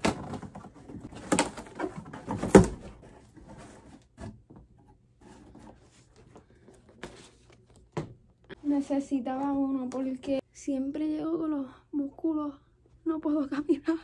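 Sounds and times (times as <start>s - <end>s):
cardboard box rustling: 0.0s - 4.4s.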